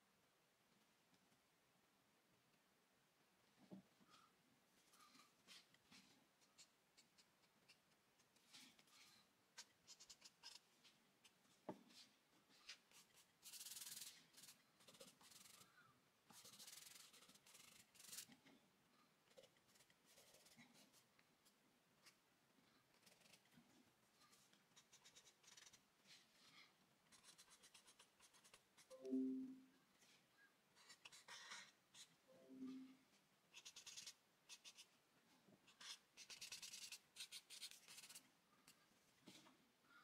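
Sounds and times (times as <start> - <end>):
charcoal pencil scratching on paper: 5.5 - 15.6, 16.3 - 18.4, 19.3 - 21.0, 22.9 - 23.6, 24.2 - 29.0, 30.8 - 32.8, 33.5 - 35.0, 35.6 - 38.3
fingers rubbing across paper: 16.3 - 18.3, 33.5 - 34.9.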